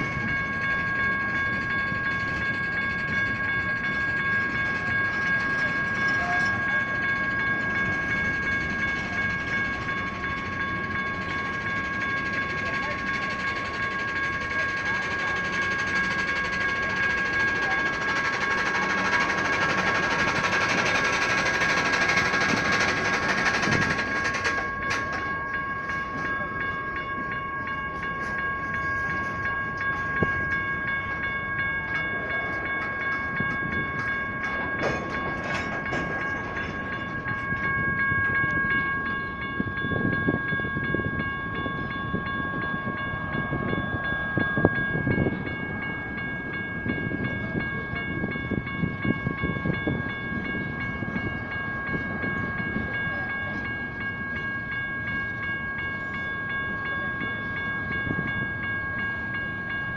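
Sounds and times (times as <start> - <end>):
crossing bells ringing: 0.0 - 59.9
freight cars rumbling: 0.0 - 59.9
train cars clanking: 0.0 - 59.9.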